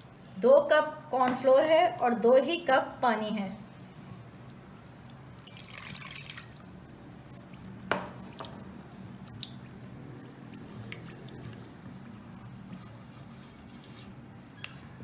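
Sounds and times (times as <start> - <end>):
spatula stirring slurry: 4.3 - 15.0
water pouring into a metal pot: 5.3 - 6.8.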